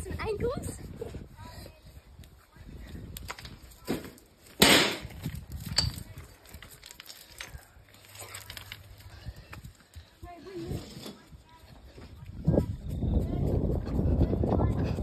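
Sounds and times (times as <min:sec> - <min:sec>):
loud crunch: 0:03.1 - 0:10.1.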